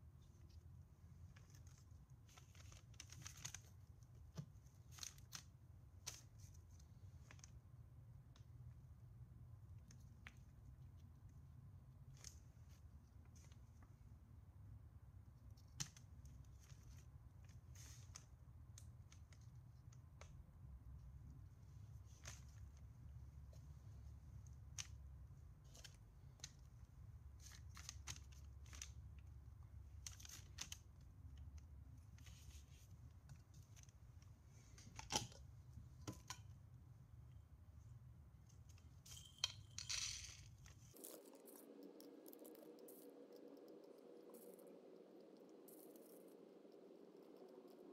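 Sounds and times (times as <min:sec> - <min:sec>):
small clicks and rustles: 0:00.2 - 0:09.0, 0:09.6 - 0:14.1, 0:15.4 - 0:36.8, 0:38.3 - 0:47.9
steady low hum: 0:40.5 - 0:47.9.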